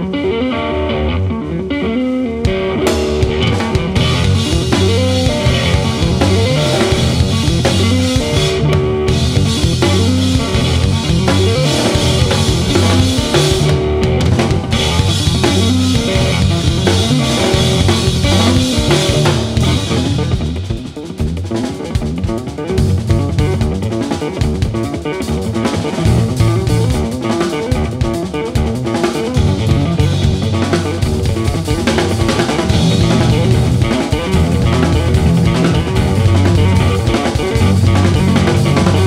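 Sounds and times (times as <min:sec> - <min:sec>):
bass guitar: 0:00.0 - 0:39.0
electric guitar: 0:00.0 - 0:39.0
drum kit: 0:02.4 - 0:39.0.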